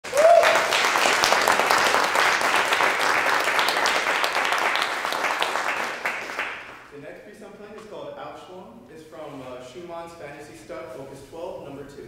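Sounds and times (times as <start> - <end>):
rising whoop: 0.0 - 0.8
audience applauding: 0.0 - 6.9.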